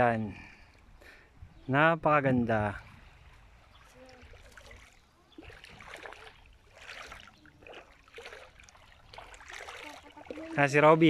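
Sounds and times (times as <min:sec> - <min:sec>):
sea water sloshing at shoreline: 0:02.8 - 0:11.0.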